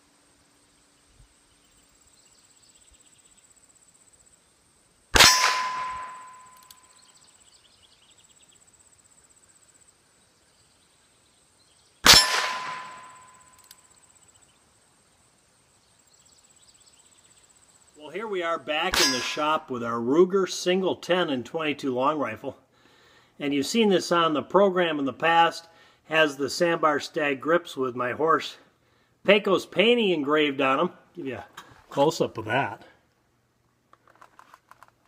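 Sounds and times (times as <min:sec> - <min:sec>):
revolver gunshots: 0:05.2 - 0:06.7, 0:12.0 - 0:13.6, 0:18.9 - 0:19.5
bullet clanging on steel target: 0:05.2 - 0:07.1, 0:12.1 - 0:13.8, 0:18.9 - 0:19.7.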